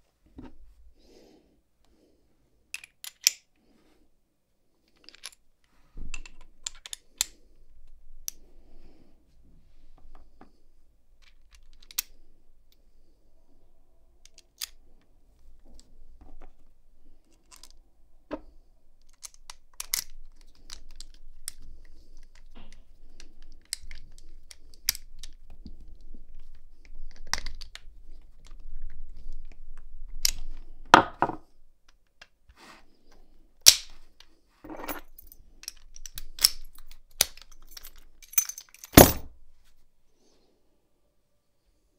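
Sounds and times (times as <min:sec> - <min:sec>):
padlock shackle snapping: 0:02.8 - 0:03.5, 0:33.6 - 0:34.0, 0:35.1 - 0:39.3
padlock metallic clicks: 0:35.2 - 0:39.3
lock knocked down: 0:38.9 - 0:39.3.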